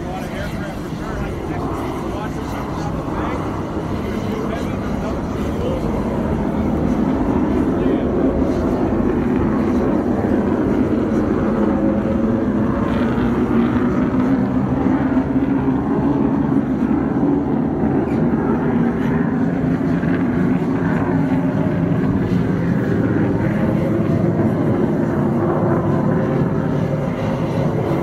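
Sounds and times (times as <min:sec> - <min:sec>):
steady ship deck rumble: 0:00.0 - 0:28.0.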